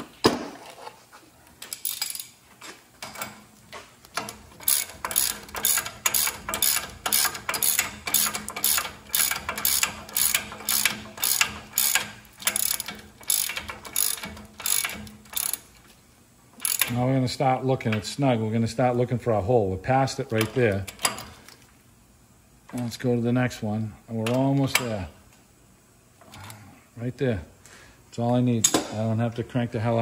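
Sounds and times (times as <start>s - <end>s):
hand ratchet clicking: 1.6s - 2.3s, 4.1s - 15.8s, 16.6s - 17.0s.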